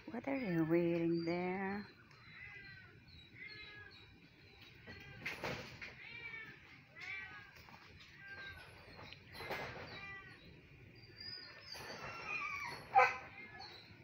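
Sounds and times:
cat meowing: 2.1 - 4.2.

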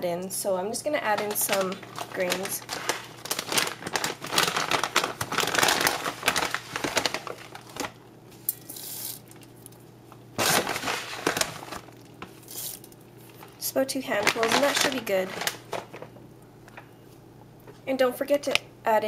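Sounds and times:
packaging crinkling and rustling: 1.0 - 16.2.

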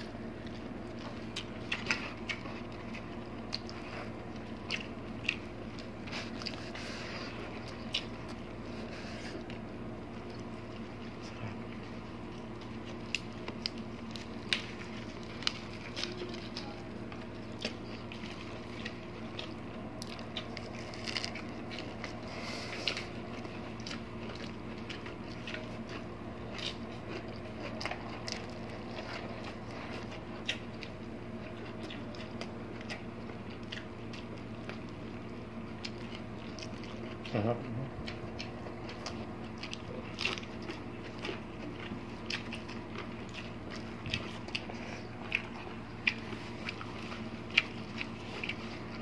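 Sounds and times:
people biting and chewing: 0.0 - 49.0
steady low hum: 0.0 - 49.0
small clicks and crackles: 13.0 - 22.1.

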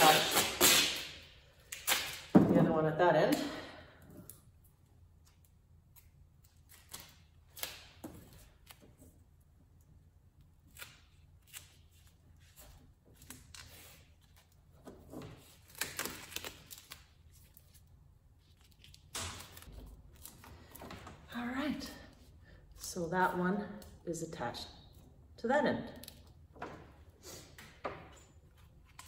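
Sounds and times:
duct tape tearing and crackling: 15.6 - 17.1.

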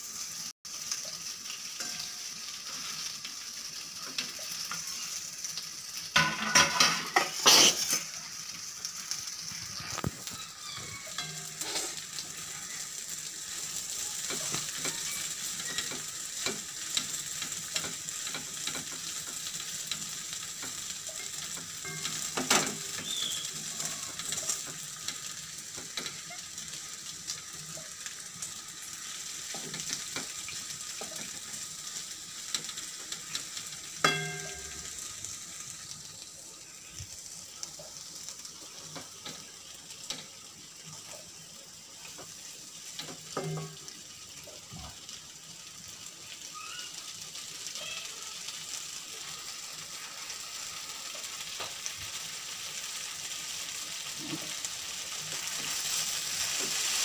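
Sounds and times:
food sizzling in oil: 0.0 - 57.0
wooden spatula scraping pan: 11.1 - 12.0.

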